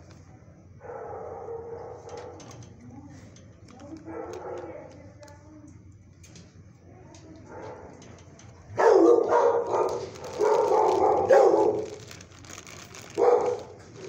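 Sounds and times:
dog howling: 8.8s - 12.2s, 13.0s - 13.8s.

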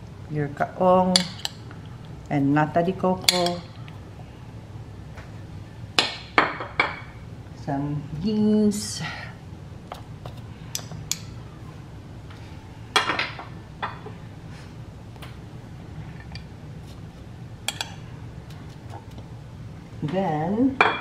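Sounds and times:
low steady hum: 0.0s - 21.0s
metal spoon clinking on dishes: 3.2s - 3.6s, 17.7s - 18.0s.

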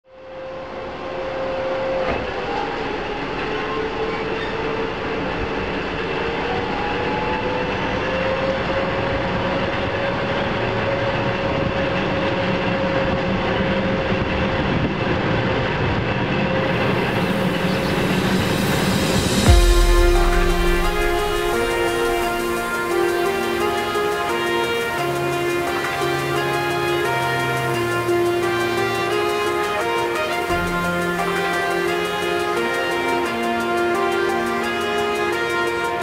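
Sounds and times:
high tone: 16.6s - 36.0s.

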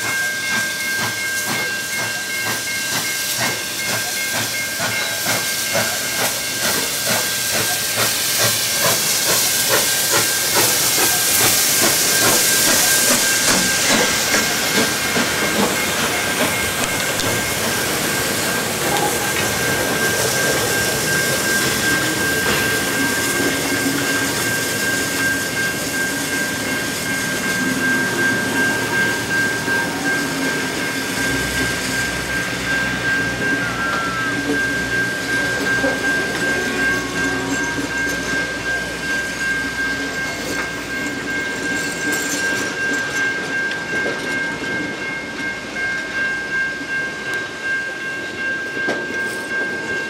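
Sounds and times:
steam hissing: 0.0s - 43.4s
steam locomotive exhaust beats: 0.0s - 50.0s
train carriages rumbling: 0.0s - 50.0s
steady high tone: 9.4s - 43.6s.

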